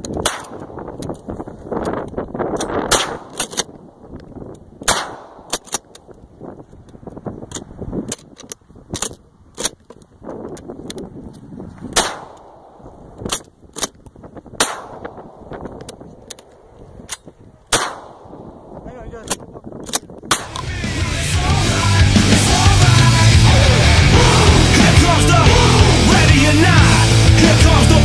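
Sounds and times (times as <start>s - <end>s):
shotgun shots: 0.2s - 0.9s, 2.8s - 3.6s, 4.8s - 5.8s, 12.0s - 12.9s, 14.6s - 15.7s, 17.7s - 18.8s, 20.3s - 20.6s
rushing noise: 20.4s - 28.0s.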